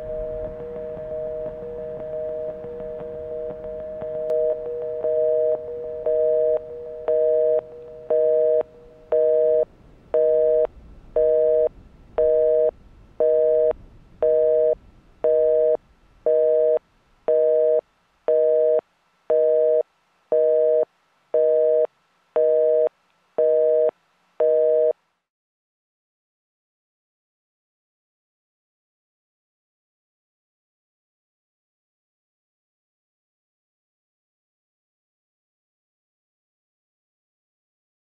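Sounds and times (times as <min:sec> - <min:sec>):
faint low rumble: 0:00.0 - 0:17.8
telephone busy signal beeps: 0:00.0 - 0:25.0.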